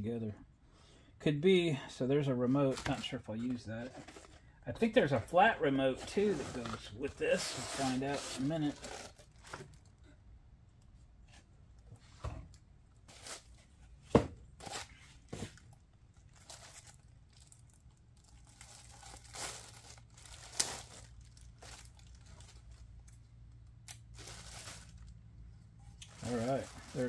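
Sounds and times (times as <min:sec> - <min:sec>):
plastic bag crinkling: 0:16.2 - 0:23.2, 0:23.9 - 0:25.2, 0:26.0 - 0:27.0.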